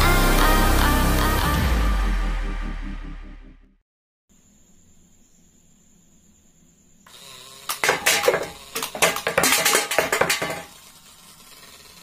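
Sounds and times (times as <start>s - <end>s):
drink cans clattering and ringing: 7.7s - 10.8s.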